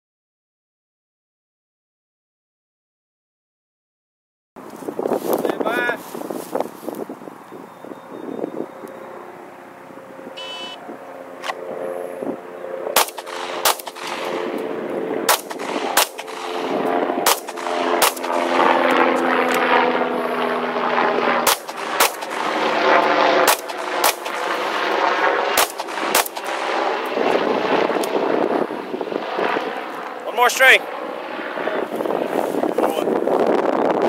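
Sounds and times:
engine drone: 0:07.7 - 0:32.3
shot timer beep: 0:10.4 - 0:10.8
pistol shots: 0:13.0 - 0:14.6, 0:15.3 - 0:18.6, 0:21.4 - 0:24.9, 0:25.5 - 0:26.8.

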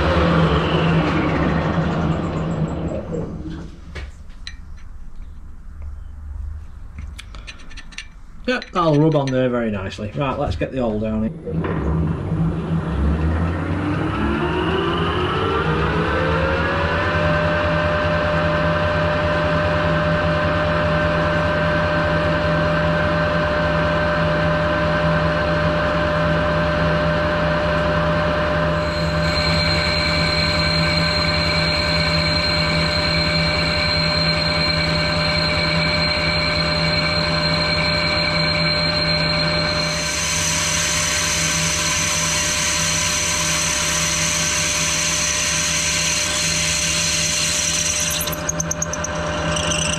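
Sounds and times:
metal lathe gear whine: 0:00.0 - 0:03.7, 0:10.9 - 0:49.9
higher whining tones: 0:27.8 - 0:49.9
drill boring into metal: 0:28.8 - 0:49.9.

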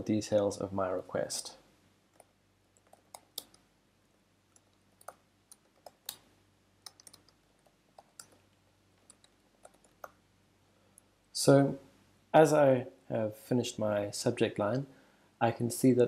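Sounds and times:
keyboard keystroke clicks: 0:04.6 - 0:07.4.

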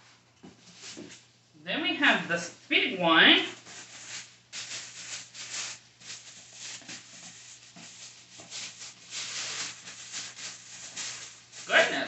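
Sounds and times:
packaging rustling: 0:03.6 - 0:12.0.

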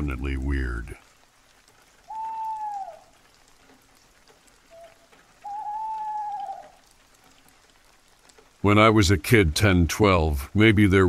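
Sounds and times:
light rain: 0:00.0 - 0:11.0
whistle-like call: 0:02.1 - 0:03.1, 0:04.7 - 0:06.8.

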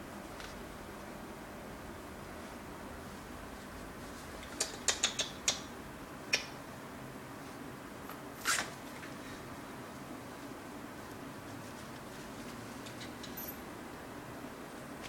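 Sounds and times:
puppy claws clicking on pads: 0:04.4 - 0:05.7.

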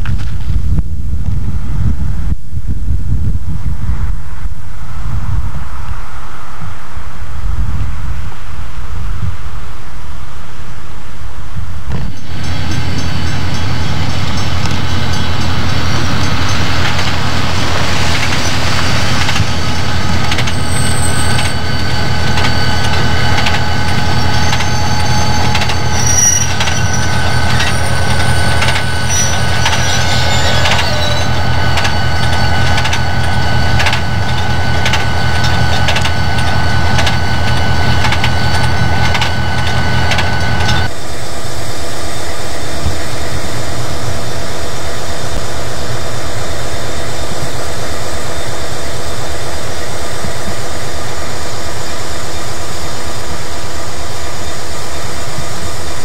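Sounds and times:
diesel locomotive engine drone: 0:00.0 - 0:56.0
wheels clicking over rail joints: 0:11.9 - 0:21.6, 0:22.2 - 0:40.9.

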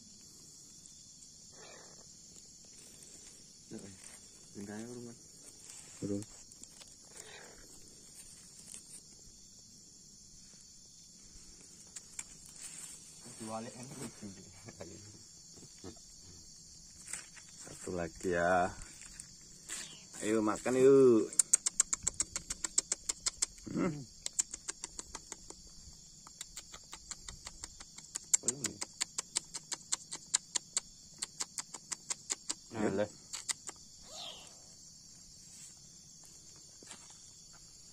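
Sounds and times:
insects chirring: 0:00.0 - 0:37.9
kitten vocal sound: 0:33.4 - 0:34.6.

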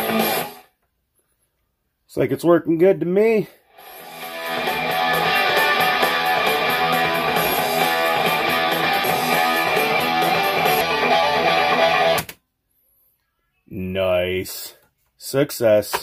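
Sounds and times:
rock music from cassette speakers: 0:00.0 - 0:00.9, 0:03.7 - 0:12.4.

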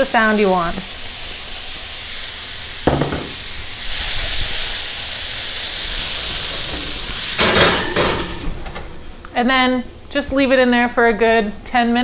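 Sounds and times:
food sizzling in a pan: 0:00.0 - 0:08.4
short knock: 0:02.9 - 0:03.4.

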